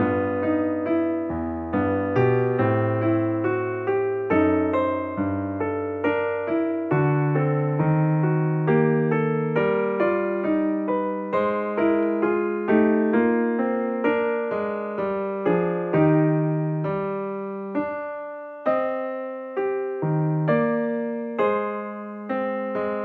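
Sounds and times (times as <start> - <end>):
gentle electric piano melody: 0.0 - 23.0.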